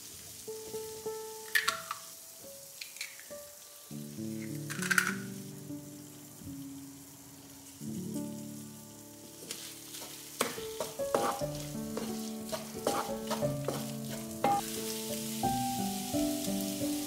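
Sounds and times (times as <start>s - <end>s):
food sizzling in frying pan: 0.0s - 17.0s
wooden spatula scraping pan: 9.4s - 15.4s.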